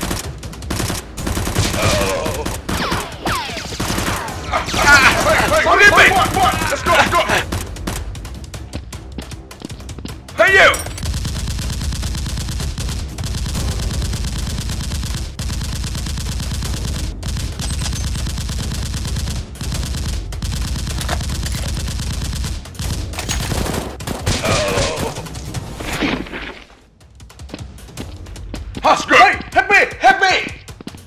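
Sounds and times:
rapid automatic gunfire: 0.0 - 8.6, 11.0 - 25.6
person crying out: 1.7 - 2.6, 24.4 - 25.2.

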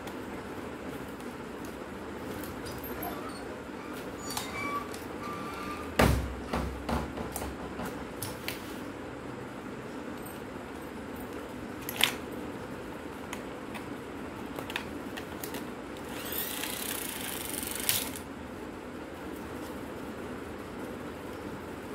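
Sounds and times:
sharp knock on plastic: 6.0 - 8.0.

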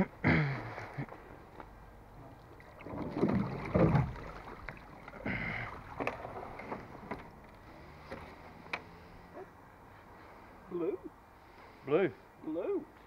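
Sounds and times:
water sloshing and splashing: 2.2 - 8.5.

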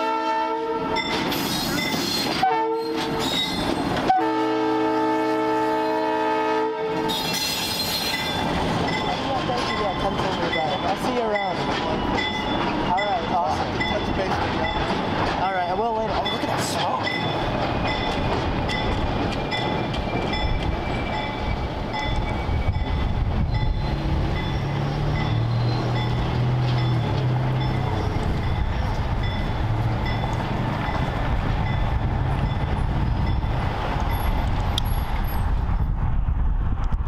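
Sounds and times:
diesel locomotive engine: 0.0 - 37.0
bell ringing: 23.6 - 31.1.

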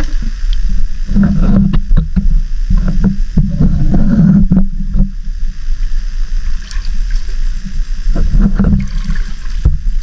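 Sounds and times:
wading through water sloshing: 6.4 - 9.6.

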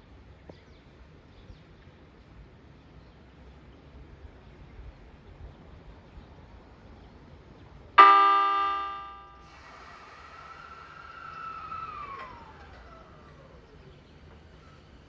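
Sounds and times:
train horn blast: 8.0 - 9.5
electric train motor whine: 8.0 - 15.0.

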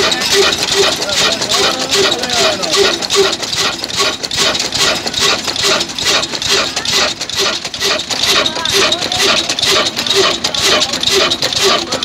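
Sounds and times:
diesel engine exhaust beating: 0.0 - 12.0.

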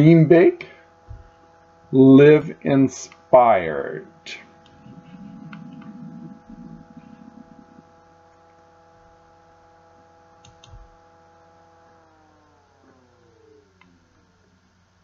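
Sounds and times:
faint steady hum: 0.0 - 15.0
click: 10.4 - 10.8.

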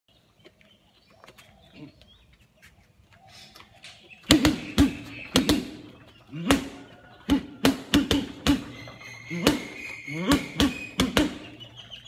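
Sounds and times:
faint bird calls: 0.5 - 12.0
gloves punching heavy bag: 4.3 - 11.5.

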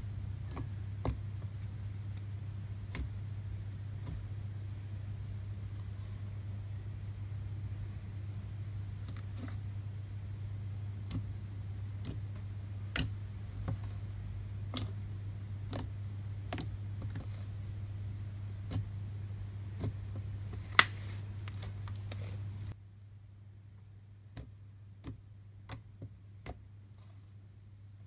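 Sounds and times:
slime kneaded by hand: 0.1 - 7.1, 8.7 - 22.8.

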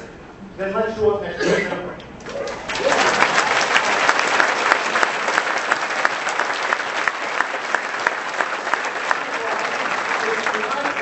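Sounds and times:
large audience applauding: 2.2 - 11.0.

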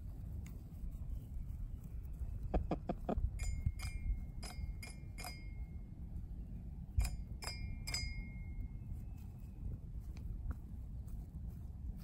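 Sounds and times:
hen pecking toy xylophone: 2.5 - 5.6.

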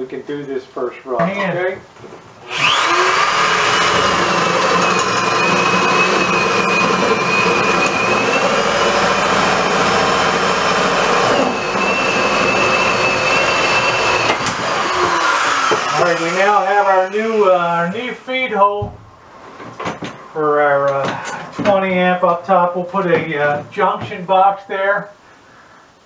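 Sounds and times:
electric drill boring into wood: 2.5 - 18.1.

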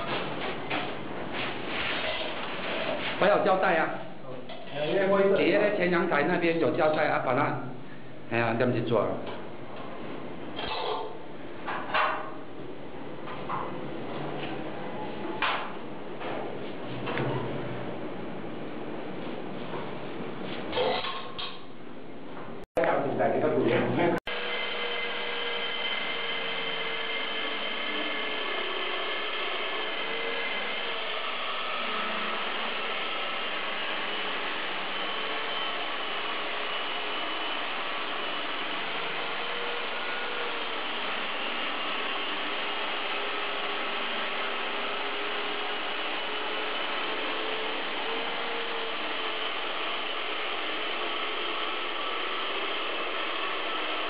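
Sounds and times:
core drill boring through wall: 24.3 - 54.0.

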